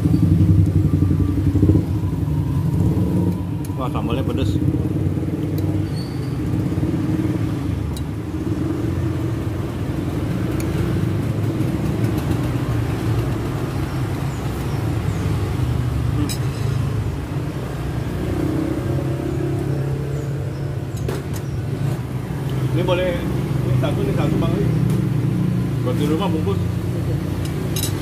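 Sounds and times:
road traffic rumble: 0.0s - 28.0s.

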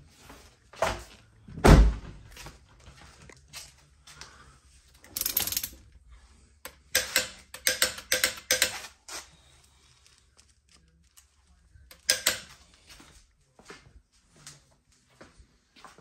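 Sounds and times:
socket wrench ratcheting: 6.7s - 8.8s, 11.9s - 12.5s.

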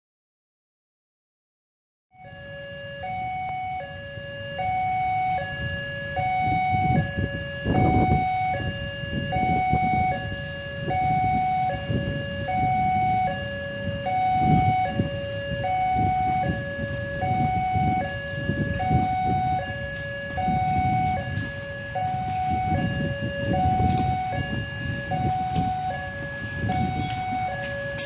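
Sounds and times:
two-tone warning alarm: 2.1s - 28.0s
train coaches rumbling past: 2.4s - 28.0s.

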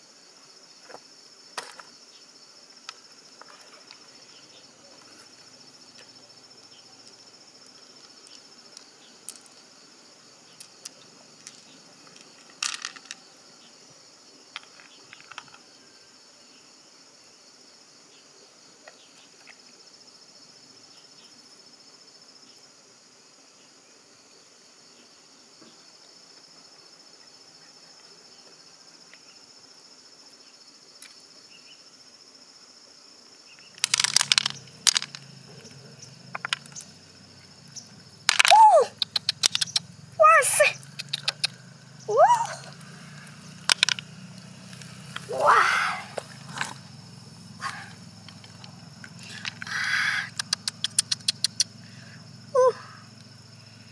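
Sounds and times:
insects chirring: 0.0s - 53.9s
handling noise: 33.7s - 37.0s.

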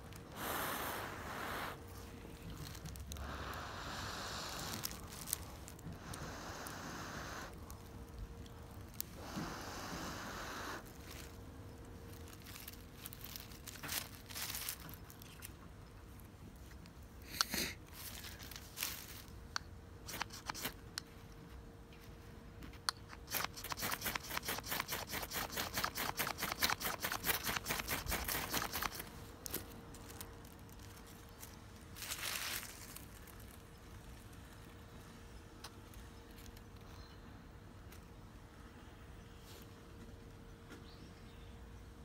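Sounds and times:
knife scraping wooden stick: 23.1s - 29.0s.

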